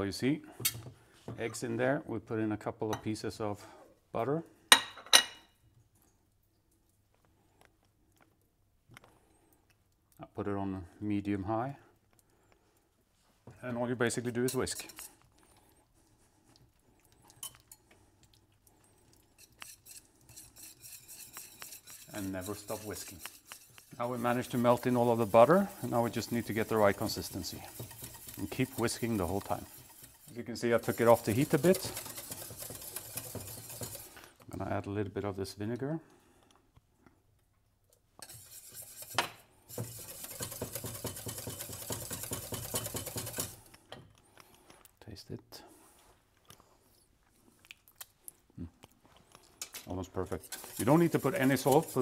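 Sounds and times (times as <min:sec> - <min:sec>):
whisk scraping in saucepan: 0:14.0 - 0:16.2, 0:18.9 - 0:34.4, 0:38.2 - 0:43.7, 0:50.1 - 0:52.0.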